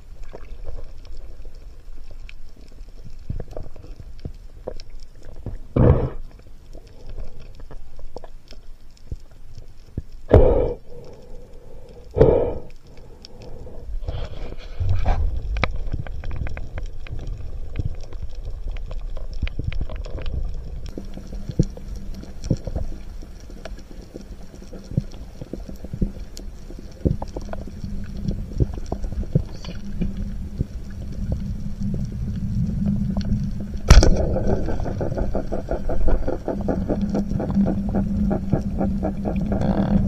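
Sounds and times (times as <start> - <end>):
low underwater rumble: 0.0 - 40.0
sharp clicks and crackles: 0.1 - 40.0.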